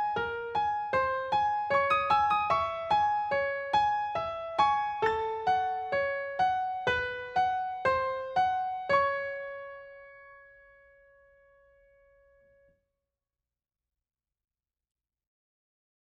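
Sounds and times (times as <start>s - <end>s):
slow piano melody: 0.0s - 12.6s.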